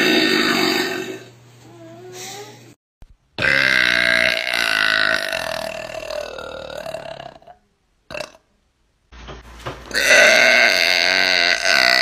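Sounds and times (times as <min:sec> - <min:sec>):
woman burping: 0:03.4 - 0:08.4, 0:10.0 - 0:12.0.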